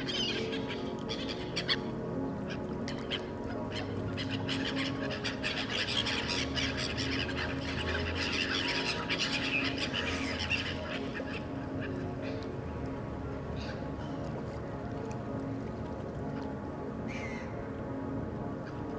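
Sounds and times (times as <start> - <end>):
waterbirds calling: 0.0 - 17.7
low steady drone: 0.0 - 18.9.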